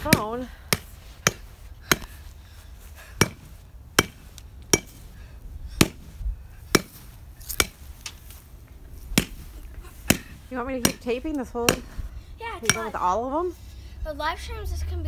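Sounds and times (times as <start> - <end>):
bat whacking a pumpkin: 5.8 - 6.1, 6.7 - 8.2, 9.1 - 12.0.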